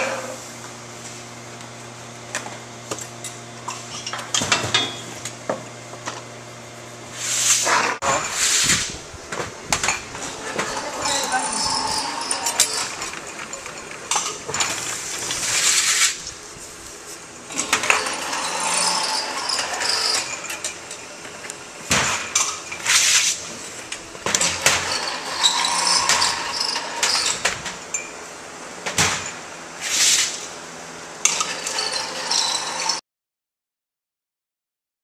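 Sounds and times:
glass bottles clinking: 9.8s - 15.1s.

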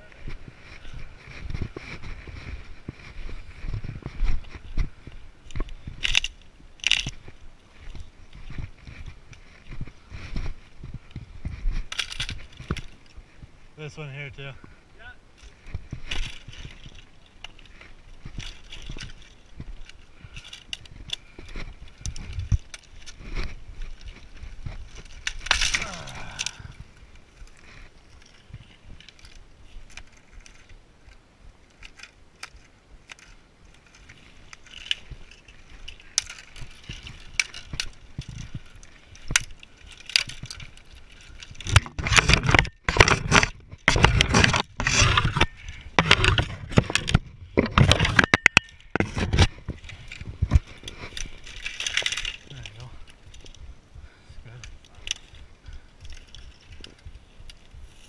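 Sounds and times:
footsteps through dry grass: 0.0s - 58.0s
dead branches snapping: 5.1s - 9.6s, 15.4s - 30.7s, 31.7s - 53.6s.

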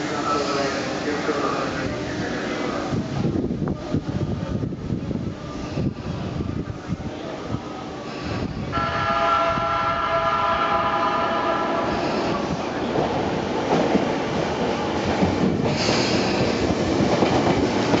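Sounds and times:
train horn blast: 8.7s - 12.2s
train wheels clattering on rails: 11.9s - 18.0s.

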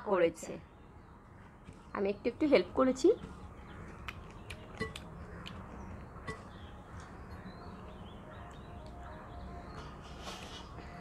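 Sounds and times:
soft chewing: 3.7s - 6.1s
mouth smacks: 4.0s - 5.6s.

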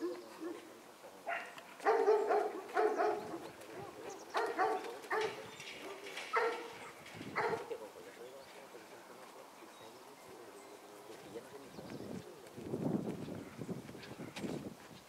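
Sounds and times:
dog barking: 0.0s - 7.8s.

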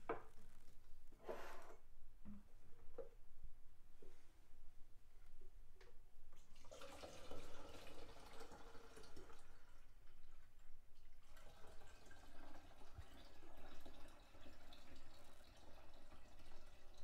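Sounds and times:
water pouring into glass jug: 6.4s - 10.6s, 11.2s - 17.0s.

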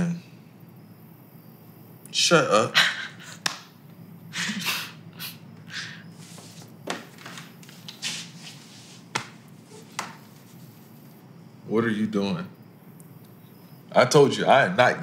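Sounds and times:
faint steady hum: 0.0s - 15.0s
quiet breathy laughs: 2.6s - 3.5s, 4.3s - 6.1s
clothing rustling: 6.1s - 11.1s.

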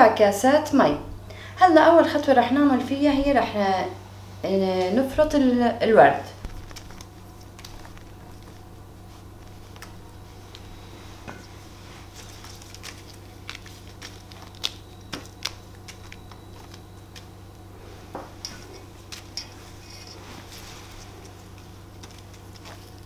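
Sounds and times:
petals rustling: 6.3s - 23.0s.

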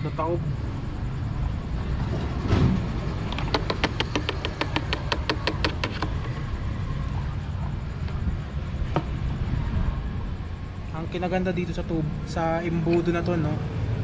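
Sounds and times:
fast sharp clicks: 3.3s - 6.4s.

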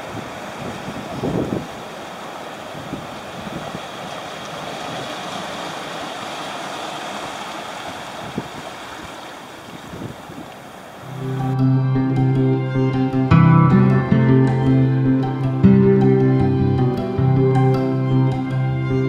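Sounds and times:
wind blowing across microphone: 0.0s - 5.4s, 7.9s - 10.8s
waves breaking over rocks: 0.0s - 11.2s
music: 11.1s - 19.0s.

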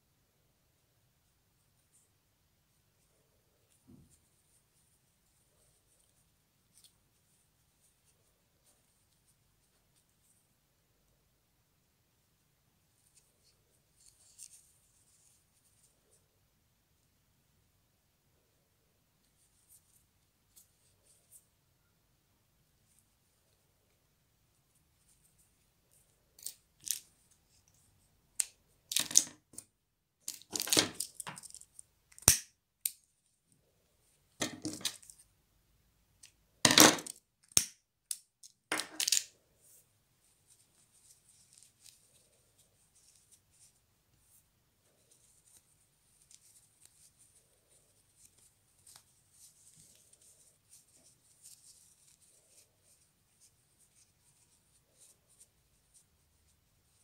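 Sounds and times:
yarn rustling: 39.3s - 57.0s.

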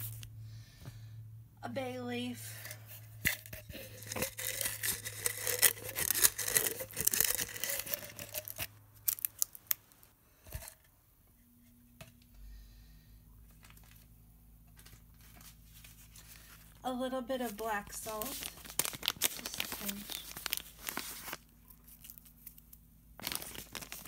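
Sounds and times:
dry leaf crackling: 3.8s - 9.8s, 17.4s - 22.6s, 23.2s - 24.0s.

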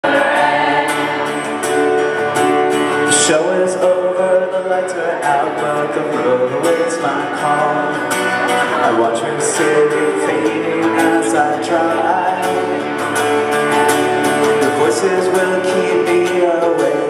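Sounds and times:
strummed acoustic guitar: 0.0s - 17.0s
person singing: 3.0s - 12.8s, 13.8s - 17.0s.

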